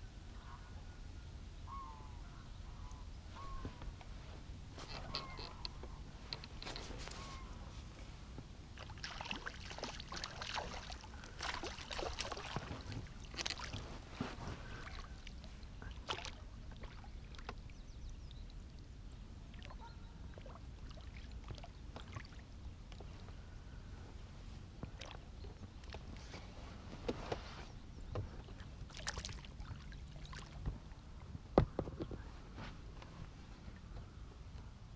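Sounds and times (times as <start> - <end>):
water splashing and dripping: 8.8 - 13.8, 14.8 - 17.6, 28.5 - 30.9.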